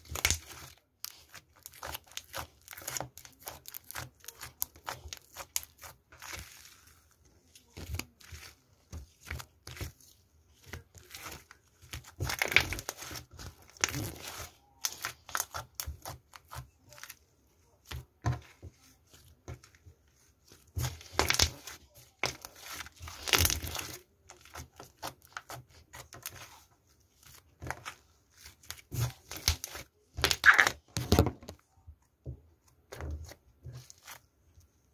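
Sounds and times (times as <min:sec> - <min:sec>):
slime squeezed and crackling: 0:00.0 - 0:06.9, 0:11.0 - 0:17.1, 0:20.8 - 0:26.6, 0:28.4 - 0:30.9.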